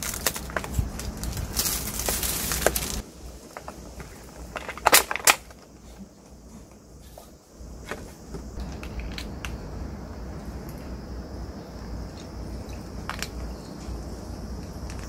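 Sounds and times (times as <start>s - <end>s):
plastic clicks and crinkles: 0.0s - 5.7s
plastic lid crackling: 0.0s - 5.7s.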